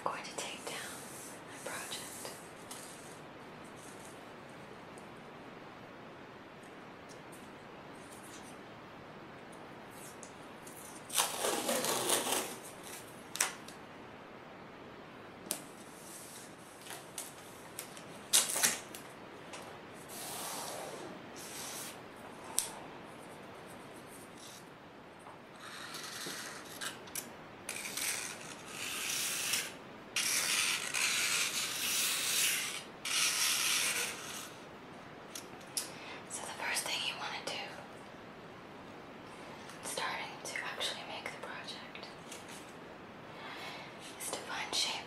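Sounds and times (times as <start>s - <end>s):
tape pulled off roll crackling: 10.0s - 13.8s, 15.4s - 20.8s, 25.6s - 34.6s.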